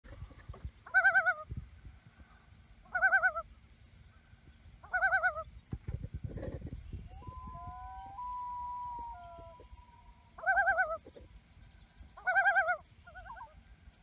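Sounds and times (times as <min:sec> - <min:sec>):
loon tremolo call: 0:07.0 - 0:11.1.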